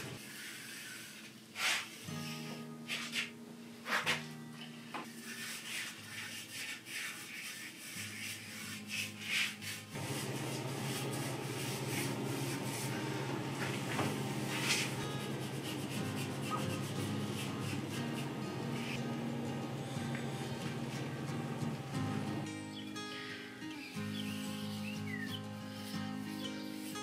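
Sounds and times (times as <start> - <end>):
paint brush rubbing on wood: 0.0 - 4.3, 5.0 - 19.2, 24.0 - 27.0.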